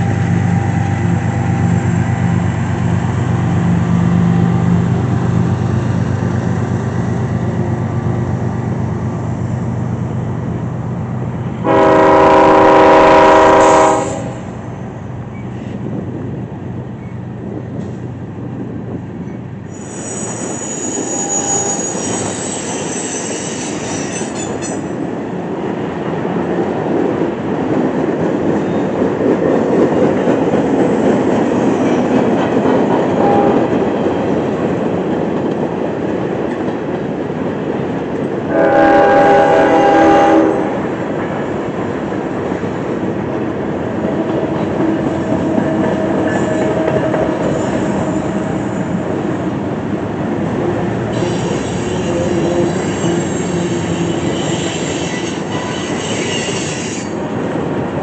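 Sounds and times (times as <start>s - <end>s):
diesel locomotive rumble: 0.0s - 22.4s, 24.4s - 55.7s
train horn blast: 11.6s - 14.6s, 33.1s - 33.8s, 38.5s - 40.9s, 51.1s - 57.2s
high wheel squeal: 19.7s - 24.9s, 51.1s - 57.2s.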